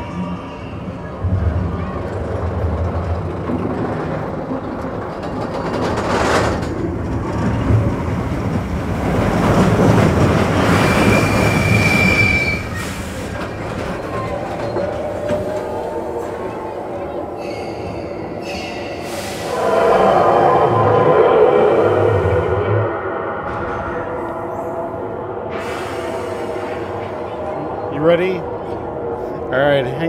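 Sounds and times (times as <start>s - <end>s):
roller coaster wheels rumbling: 0.0s - 30.0s
high squeal: 10.7s - 13.0s, 17.4s - 24.8s.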